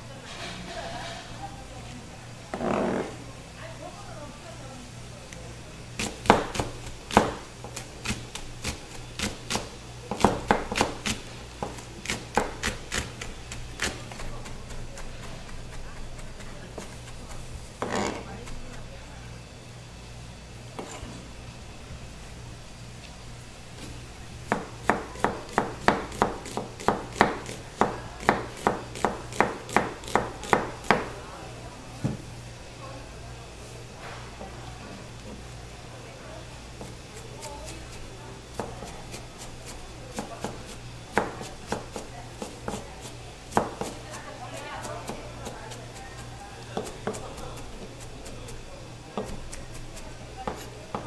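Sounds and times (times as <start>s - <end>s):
knife chopping on cutting board: 6.0s - 18.8s, 20.8s - 21.1s, 23.8s - 31.1s, 38.5s - 45.6s, 46.8s - 48.5s, 49.2s - 51.0s.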